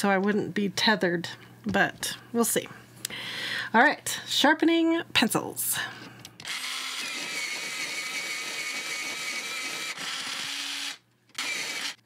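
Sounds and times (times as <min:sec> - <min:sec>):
electric pencil sharpener motor: 0:06.4 - 0:12.0.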